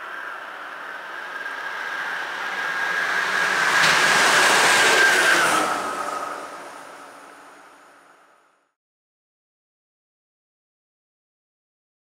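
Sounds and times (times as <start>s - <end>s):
locomotive high whine: 0.0s - 8.8s
train wheels and air rushing: 0.2s - 8.4s.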